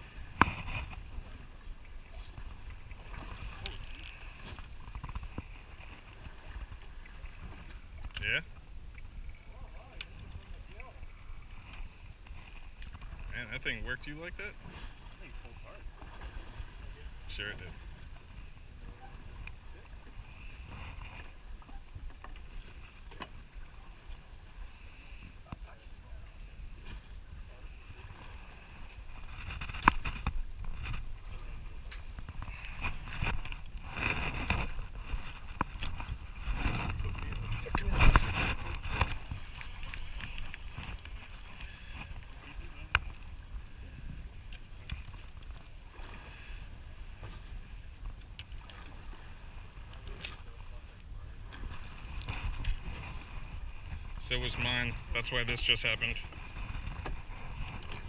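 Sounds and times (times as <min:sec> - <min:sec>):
sea noise: 0:00.0 - 0:58.0
wind and water rumble: 0:00.0 - 0:58.0
fishing reel clicking and whirring: 0:03.6 - 0:04.2.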